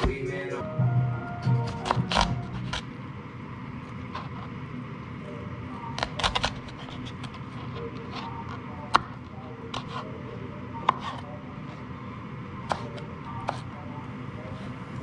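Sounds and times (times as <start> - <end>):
knife chopping on cutting board: 0.0 - 0.3, 1.5 - 2.9.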